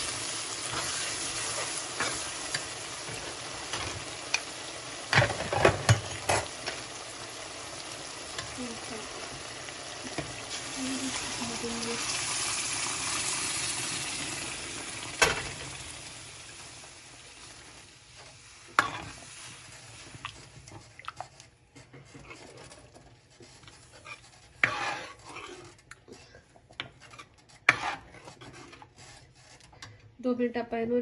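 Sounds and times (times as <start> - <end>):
lentils sizzling in hot oil: 0.0 - 26.0, 26.8 - 29.8
metal spoon scraping pan: 18.7 - 19.3, 21.8 - 30.1.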